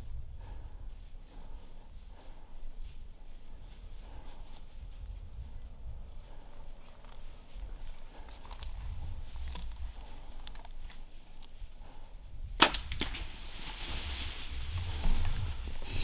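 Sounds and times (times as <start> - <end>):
bow shot crack: 12.6 - 13.4
hogs rustling through dry leaves: 13.0 - 16.0.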